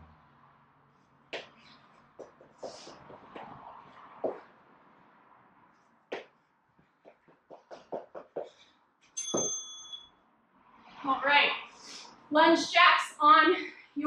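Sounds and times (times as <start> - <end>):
feet thudding on floor: 4.2 - 4.5
timer bell ding: 9.2 - 10.2.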